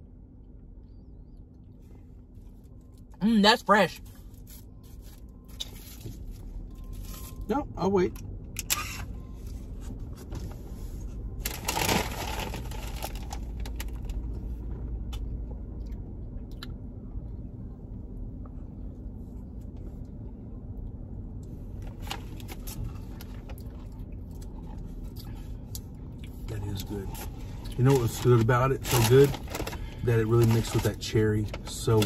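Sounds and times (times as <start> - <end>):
car cabin hum: 0.1 - 32.0.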